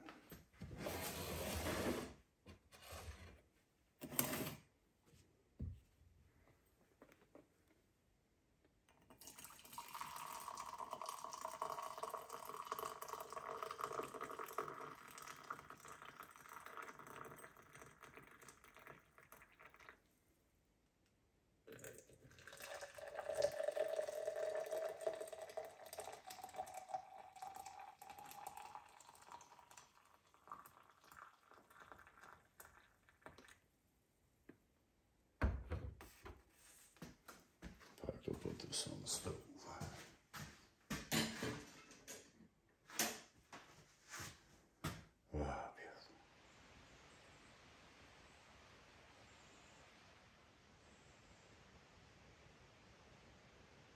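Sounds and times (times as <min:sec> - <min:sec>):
coffee pouring into tumbler: 0:08.9 - 0:20.2, 0:21.7 - 0:33.7.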